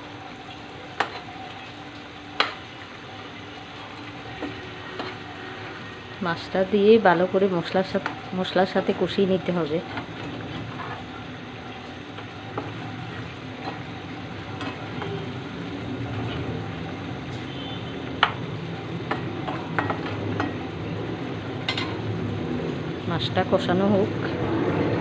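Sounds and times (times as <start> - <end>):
fish frying in a pan: 0.0 - 25.0
spatula stirring and scraping: 0.9 - 2.8, 3.6 - 5.9, 7.9 - 20.8.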